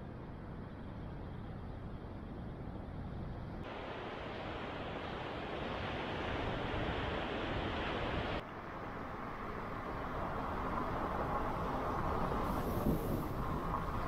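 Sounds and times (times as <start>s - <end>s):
ocean surf breaking on beach: 3.7s - 14.0s
car driving on road: 7.2s - 14.0s.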